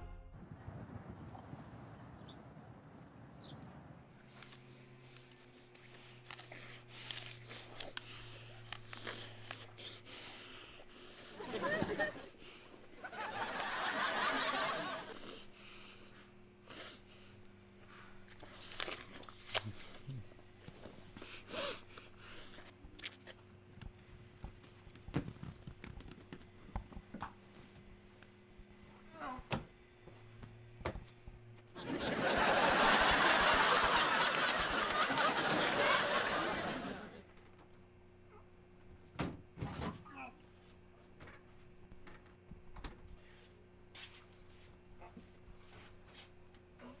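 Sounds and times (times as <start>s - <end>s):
steady low hum: 0.0s - 47.0s
man chewing an apple: 4.3s - 11.4s, 18.2s - 24.0s
apples knocking and rustling: 23.8s - 27.7s.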